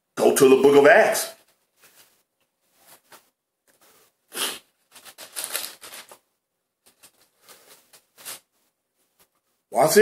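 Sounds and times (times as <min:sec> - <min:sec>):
pages being flipped: 0:01.4 - 0:09.4.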